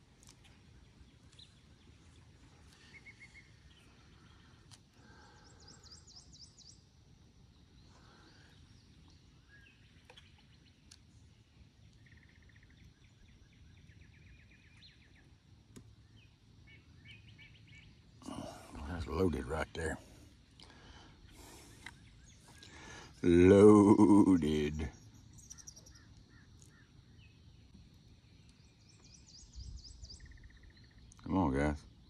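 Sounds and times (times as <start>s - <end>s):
small birds chirping and trilling: 0.0s - 32.0s.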